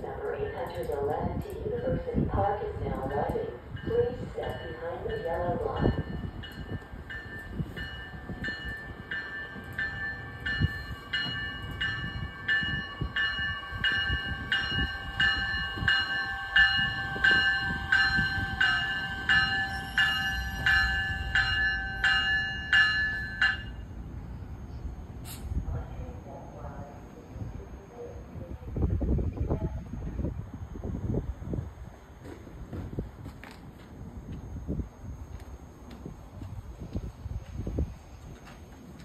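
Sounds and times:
train rumble: 0.0 - 39.0
train bell ringing: 0.2 - 2.2, 2.9 - 24.1.

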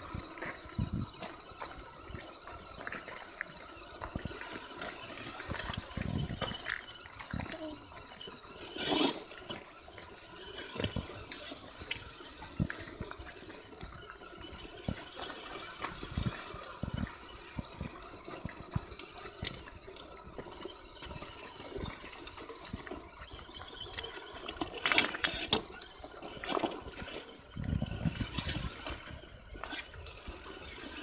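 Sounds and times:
stones knocking and clacking: 2.6 - 7.5.

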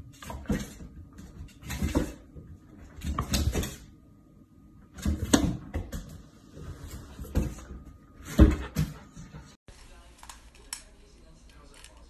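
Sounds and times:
dog paws scrabbling on cabinet: 0.0 - 3.9, 4.9 - 9.6.

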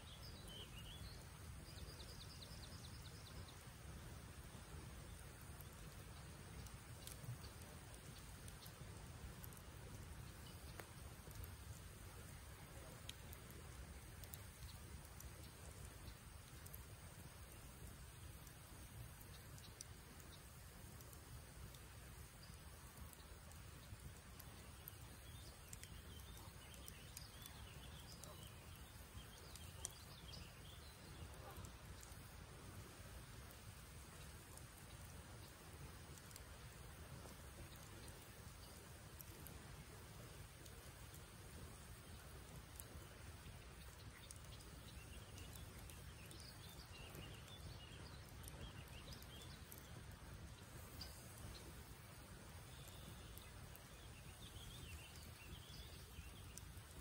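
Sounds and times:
faint bird chirps: 0.0 - 13.4, 22.1 - 56.9
campfire crackling and popping: 0.0 - 57.0.

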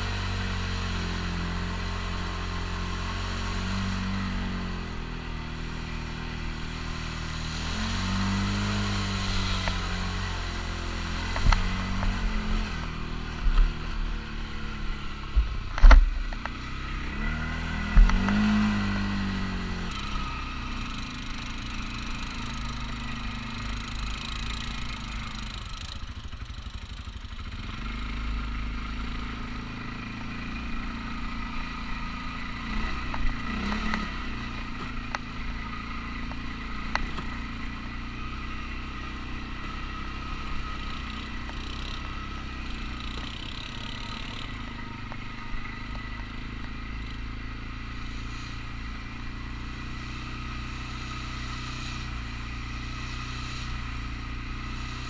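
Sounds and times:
atv engine running: 0.0 - 55.0.

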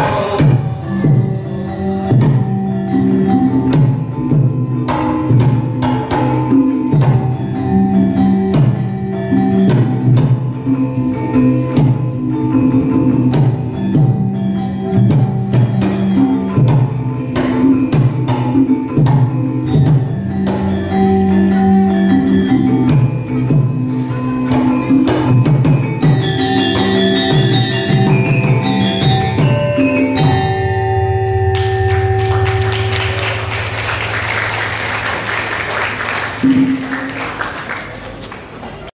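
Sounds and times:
gamelan metallophones and gongs: 0.0 - 37.6
drum strokes: 15.0 - 37.4
applause: 31.6 - 38.9.

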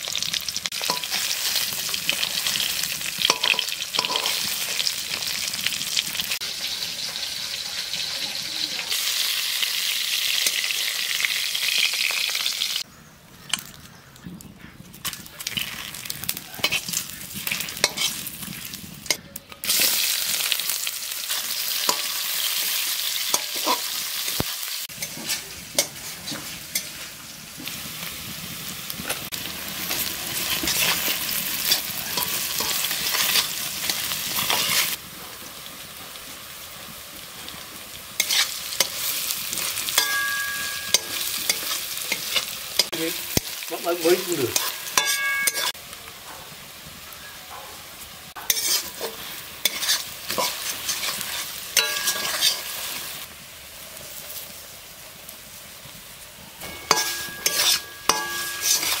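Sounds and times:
onions sizzling in hot oil: 0.0 - 12.9, 15.0 - 59.0
metal spatula scraping a wok: 0.7 - 5.5, 15.8 - 20.4, 21.3 - 27.2, 29.1 - 35.0, 38.2 - 43.6, 44.2 - 45.8, 48.4 - 53.2, 56.6 - 59.0.

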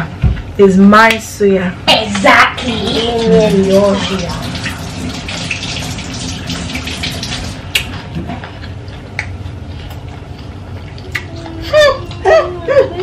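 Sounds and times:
tap water running and splashing: 2.2 - 7.8.

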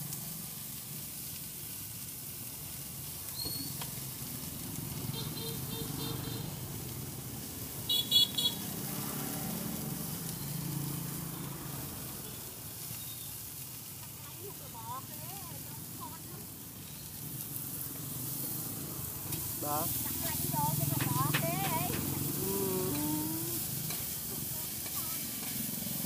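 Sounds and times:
street traffic rumble: 0.0 - 26.0
vehicle horn beeping: 5.1 - 6.5, 7.9 - 8.6.

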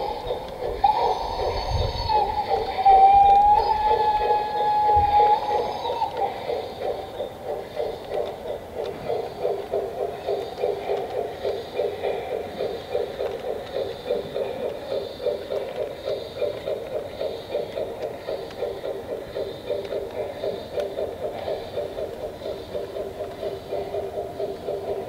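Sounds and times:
model steam locomotive chuffing: 0.0 - 25.0
locomotive whistle: 0.8 - 6.2.

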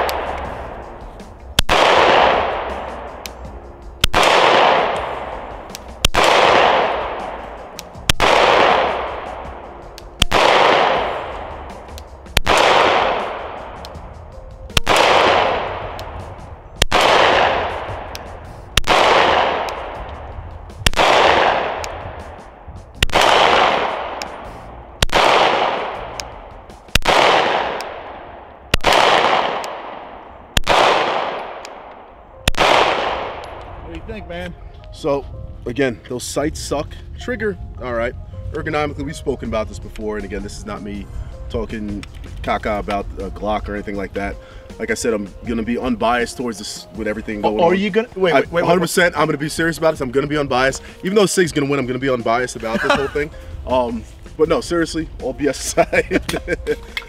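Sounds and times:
pistol shots with echo: 0.0 - 0.6, 1.6 - 3.4, 4.0 - 14.0, 14.7 - 20.2, 20.8 - 33.9.

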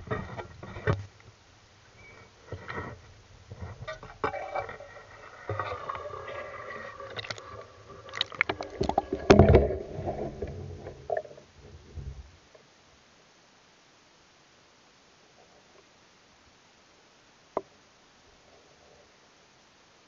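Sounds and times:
water sloshing: 5.5 - 12.2.

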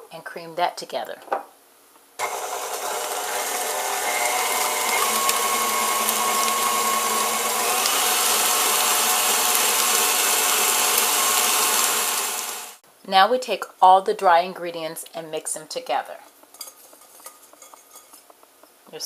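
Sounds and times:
electric mixer whining: 2.2 - 12.8.

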